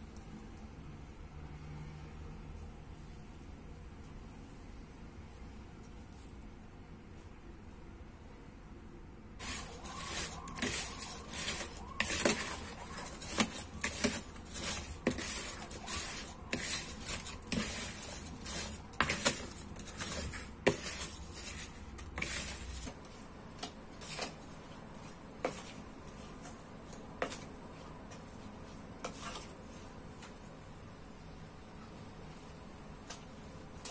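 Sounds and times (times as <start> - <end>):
spatula stirring fruit in a bowl: 9.4 - 30.4.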